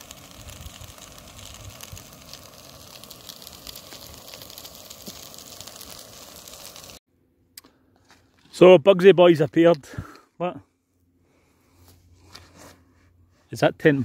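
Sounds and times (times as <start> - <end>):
food sizzling in frying pan: 0.0 - 7.0.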